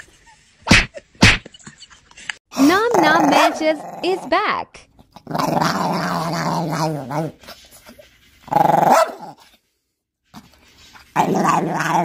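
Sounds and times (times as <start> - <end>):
dog growly vocalizations: 5.1 - 7.4, 11.2 - 12.0.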